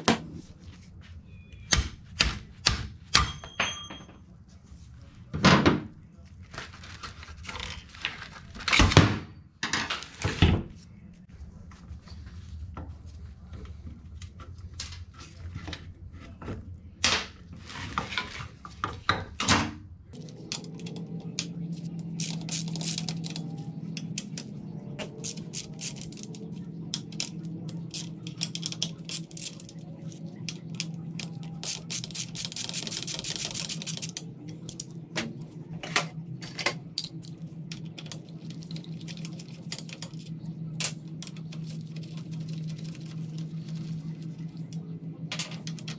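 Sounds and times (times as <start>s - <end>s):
metal tools clinking: 3.3s - 4.2s, 35.8s - 41.8s
steady low hum: 19.8s - 45.9s.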